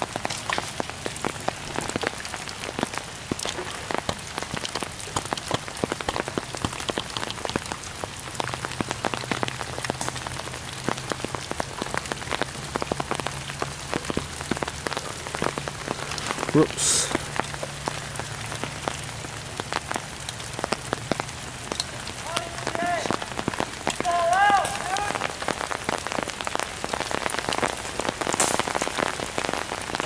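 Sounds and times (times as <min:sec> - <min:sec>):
rain pattering on umbrella: 0:00.0 - 0:30.0.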